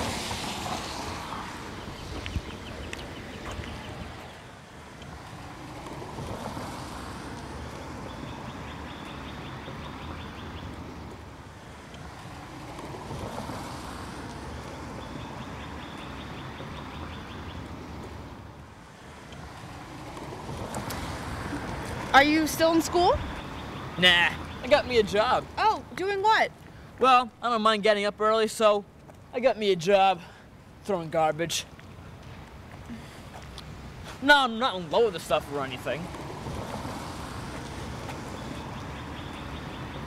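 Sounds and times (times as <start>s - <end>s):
rushing noise: 0.0s - 4.5s.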